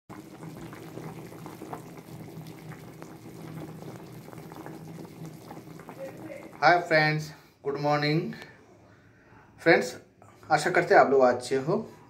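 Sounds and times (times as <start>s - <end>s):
thick curry bubbling and popping: 0.0s - 6.9s.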